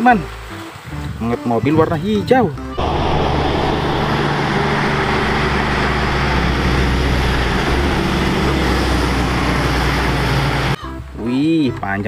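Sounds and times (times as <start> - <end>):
road and tyre noise: 2.8 - 10.8
truck engine humming: 2.8 - 10.8.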